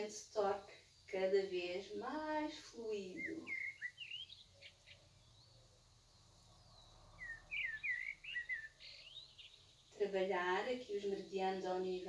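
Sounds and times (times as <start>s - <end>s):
small songbird chirping: 0.0s - 12.0s.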